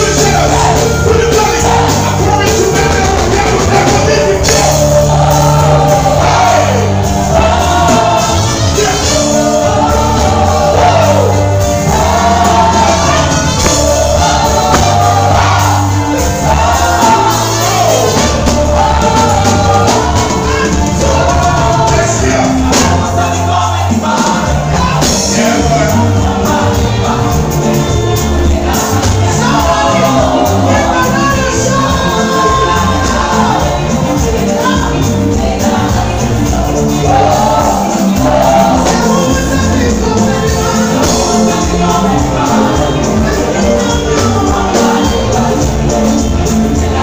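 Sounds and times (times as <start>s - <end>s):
choir singing: 0.0s - 47.0s
steady bass line: 0.0s - 47.0s
woman singing lead: 0.3s - 47.0s.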